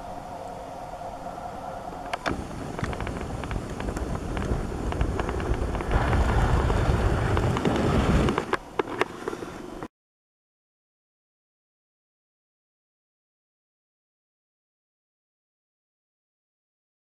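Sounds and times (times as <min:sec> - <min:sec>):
camera handling rumble: 0:02.1 - 0:09.6.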